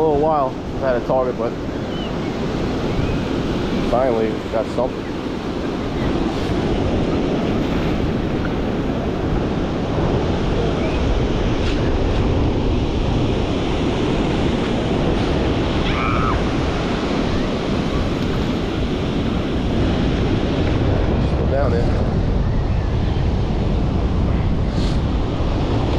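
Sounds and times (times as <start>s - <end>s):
waves washing on sand: 0.0s - 25.9s
wind buffeting microphone: 0.0s - 25.9s.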